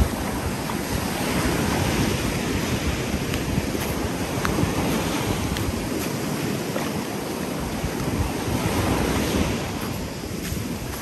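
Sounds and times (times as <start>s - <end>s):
sea waves washing onto shore: 0.0s - 11.0s
wind buffeting microphone: 0.0s - 11.0s.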